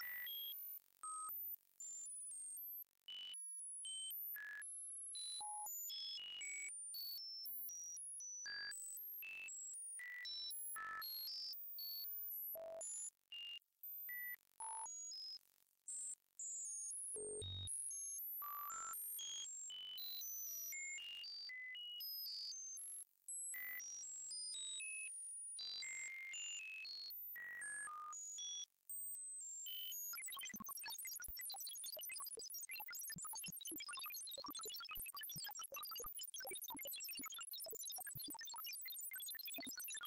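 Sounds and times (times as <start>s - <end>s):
sine tone beeps: 17.2s - 19.4s, 29.5s - 40.0s.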